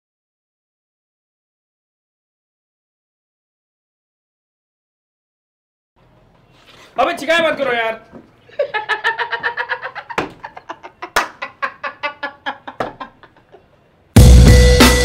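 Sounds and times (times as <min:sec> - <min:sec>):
man laughing heartily: 0:08.5 - 0:13.8
drum-heavy music: 0:14.2 - 0:15.0.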